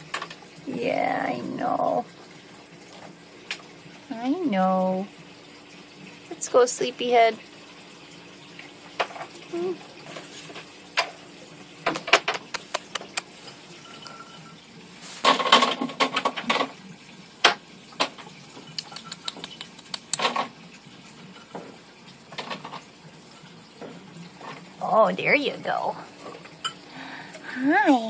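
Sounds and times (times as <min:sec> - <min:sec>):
person lip-smacking and tongue clicking: 0:12.3 - 0:13.3, 0:18.7 - 0:20.2.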